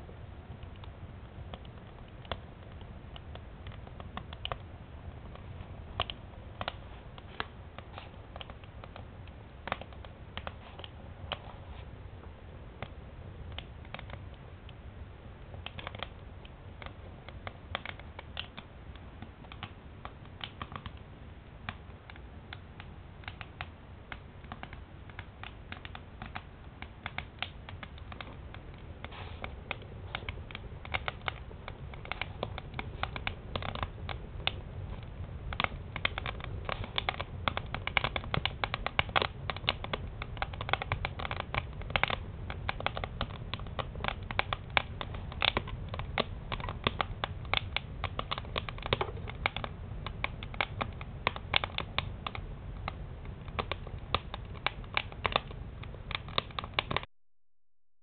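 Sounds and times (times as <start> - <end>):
low steady rumble: 0.0 - 57.1
wood fire crackling and popping: 0.0 - 57.1.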